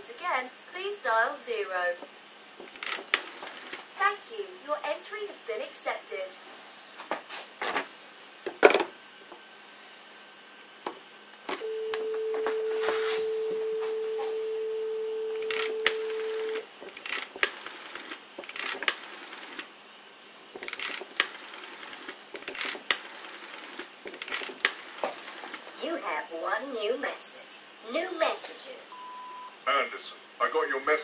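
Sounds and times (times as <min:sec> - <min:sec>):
dial tone: 0:11.6 - 0:16.6.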